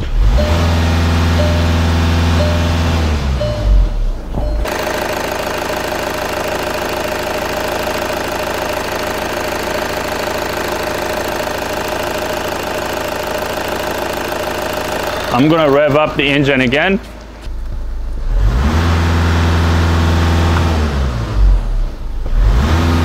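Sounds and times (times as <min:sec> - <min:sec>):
diesel engine clattering at raised revs: 0:04.4 - 0:16.0.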